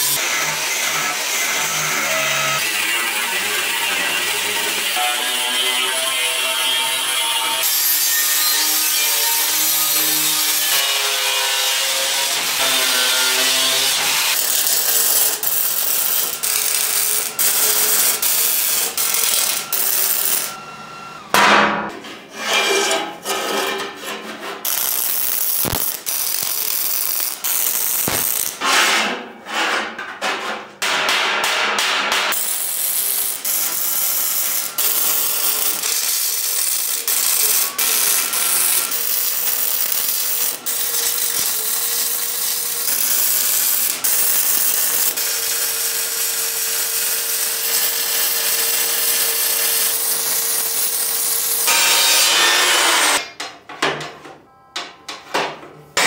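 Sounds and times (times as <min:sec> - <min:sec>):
angle grinder cutting steel pipe: 0:00.0 - 0:21.3, 0:24.6 - 0:28.7, 0:32.3 - 0:53.2
welding crackle: 0:13.6 - 0:20.5, 0:24.6 - 0:28.6, 0:32.3 - 0:51.8.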